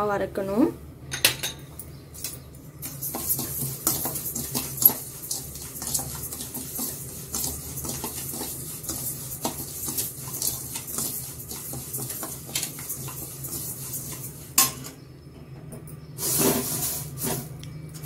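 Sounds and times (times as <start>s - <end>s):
spoon scraping grains in pan: 2.8s - 14.9s, 16.2s - 17.6s.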